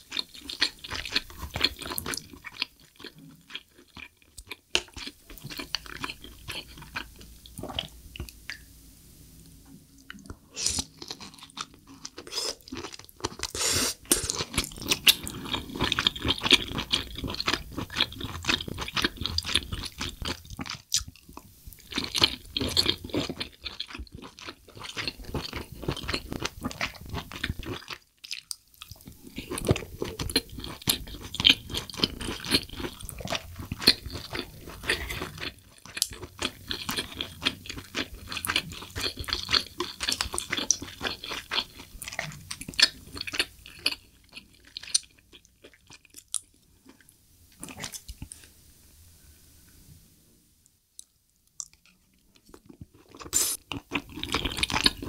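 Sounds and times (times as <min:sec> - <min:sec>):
close chewing: 0:00.0 - 0:08.3, 0:10.0 - 0:47.0, 0:51.0 - 0:55.0
wet crunching mouth sounds: 0:10.0 - 0:47.0, 0:51.0 - 0:55.0.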